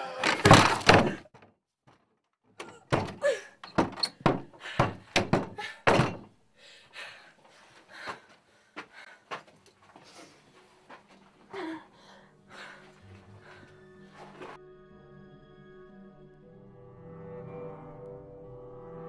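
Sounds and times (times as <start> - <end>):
hand banging on a door: 2.7 - 6.3.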